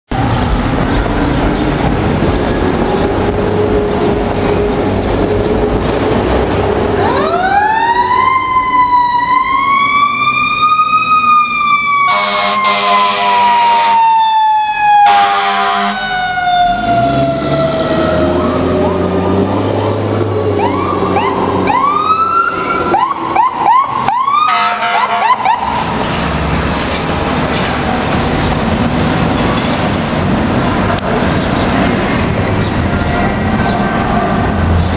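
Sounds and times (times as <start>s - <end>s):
traffic noise: 0.1s - 34.9s
truck engine: 0.1s - 34.9s
fire engine siren wailing: 0.6s - 28.2s
siren yelping: 7.0s - 19.8s, 20.6s - 25.9s
air horn blasts: 12.1s - 14.0s, 15.0s - 16.1s, 24.5s - 25.4s.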